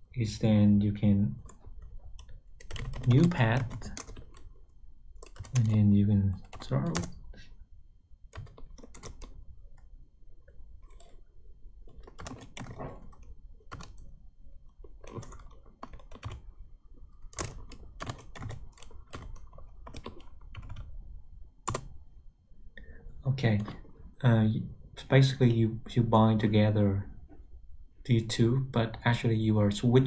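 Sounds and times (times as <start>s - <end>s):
typing on keyboard: 1.4s - 4.6s, 5.2s - 7.3s, 8.3s - 9.9s, 11.8s - 14.1s, 14.7s - 20.9s, 21.6s - 22.0s.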